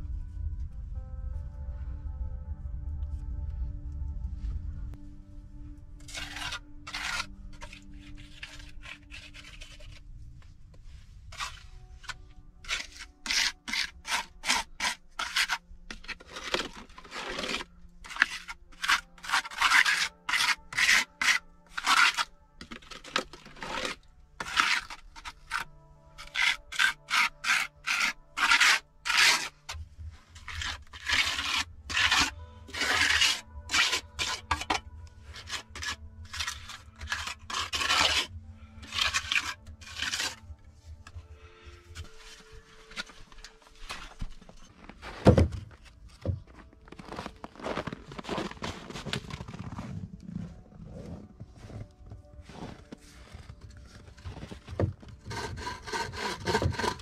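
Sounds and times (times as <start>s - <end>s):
trowel scraping wet mortar: 6.0s - 10.0s, 11.3s - 41.1s, 52.7s - 57.0s.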